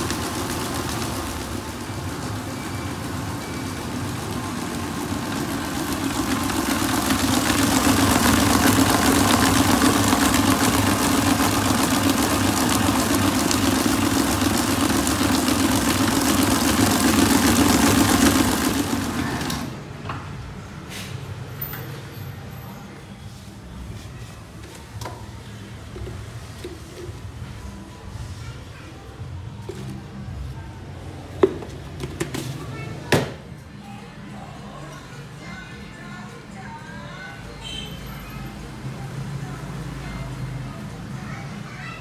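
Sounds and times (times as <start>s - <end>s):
stand mixer whisking batter: 0.0s - 19.8s.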